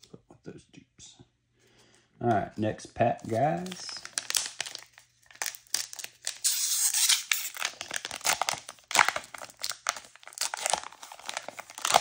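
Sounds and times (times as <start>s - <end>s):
plastic wrapper tearing and crinkling: 3.2s - 12.0s.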